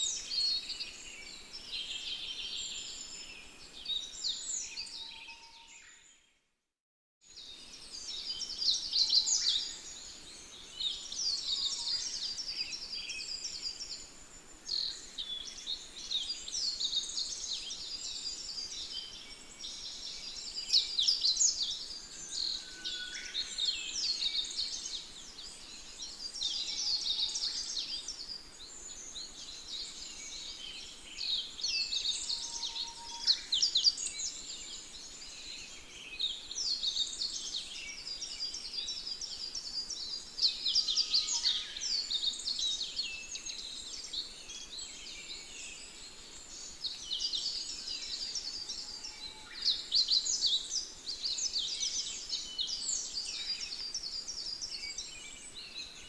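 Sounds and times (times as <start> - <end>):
small birds chirping: 7.3 - 56.0.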